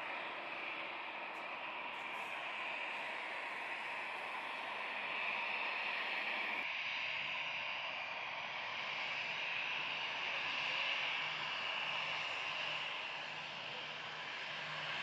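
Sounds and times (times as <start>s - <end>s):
jet engines rushing hiss: 0.0s - 15.0s.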